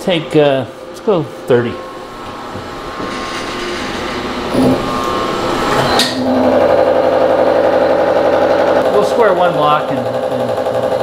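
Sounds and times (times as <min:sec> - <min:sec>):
milling machine running: 0:01.8 - 0:11.0
face mill cutting with rapid pulsing: 0:03.9 - 0:11.0.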